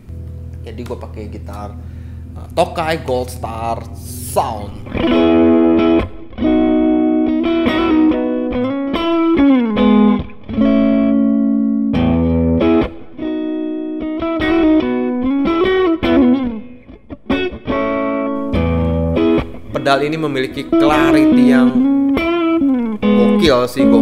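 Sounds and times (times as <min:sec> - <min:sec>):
overdriven electric guitar licks: 0:00.0 - 0:24.0
muted guitar strokes: 0:18.4 - 0:24.0.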